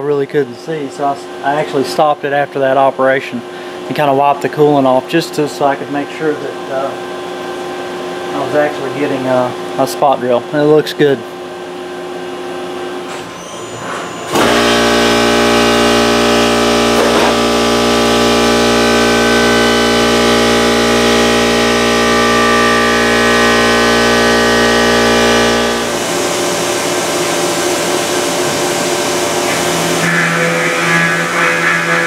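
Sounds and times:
milling cutter whining: 13.0 - 32.0.

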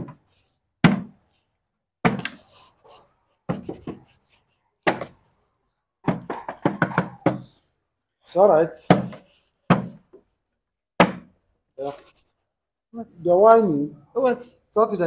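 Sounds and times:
plastic bottle knocking on wood: 6.0 - 7.5, 8.9 - 10.1.

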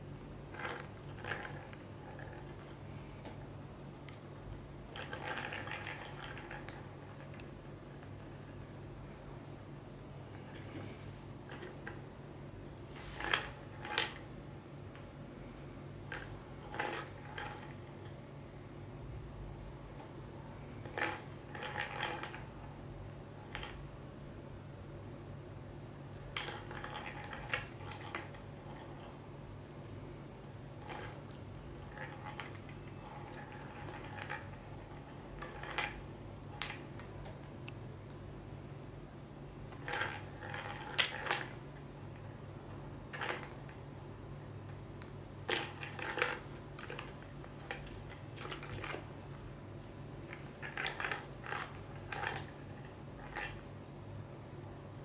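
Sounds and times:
low steady hum: 0.0 - 55.0
plastic balls rattling in toy: 0.5 - 2.7, 4.9 - 7.4, 16.1 - 17.8, 20.8 - 22.5, 26.2 - 29.1, 30.8 - 36.0, 39.7 - 41.6, 43.1 - 43.8, 45.4 - 49.1, 50.2 - 53.6
plastic toy clicks and rattles: 33.2 - 34.6, 39.8 - 41.6, 45.5 - 49.0, 50.3 - 52.6.

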